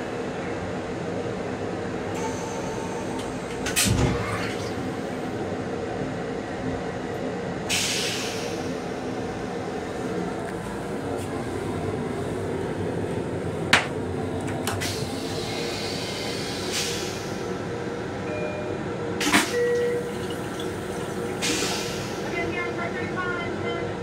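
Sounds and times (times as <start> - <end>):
railcar running rumble: 0.0 - 24.0.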